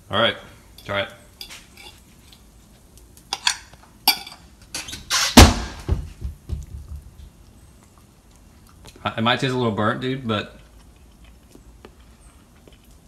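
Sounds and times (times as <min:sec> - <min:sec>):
cutlery clinking on a plate: 0:00.8 - 0:02.4, 0:03.3 - 0:04.5
loud thump: 0:05.3 - 0:07.1
dull knocks: 0:05.4 - 0:07.2.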